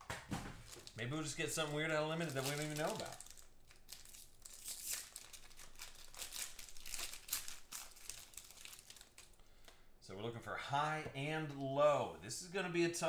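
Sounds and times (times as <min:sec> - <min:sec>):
plastic shrink wrap crinkling: 0:00.5 - 0:09.8.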